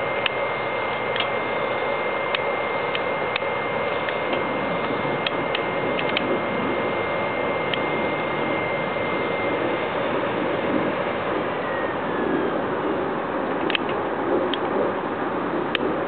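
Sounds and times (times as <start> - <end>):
high fan whine: 0.0 - 16.0
stove fire rushing: 0.0 - 16.0
sharp clicks of fire being poked: 0.2 - 1.4, 2.3 - 6.3, 13.6 - 14.7.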